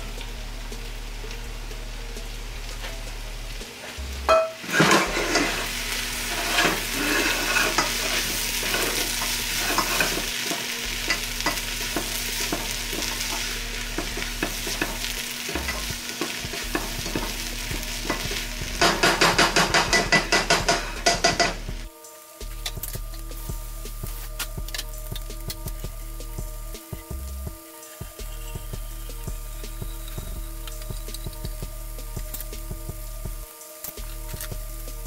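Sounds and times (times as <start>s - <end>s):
vegetables sizzling in a pot: 0.0s - 35.0s
spatula scraping a pot: 4.6s - 10.6s.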